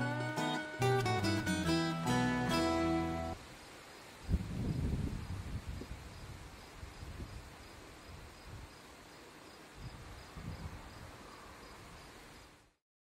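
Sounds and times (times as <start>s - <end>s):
faint insects chirping: 3.3s - 12.8s.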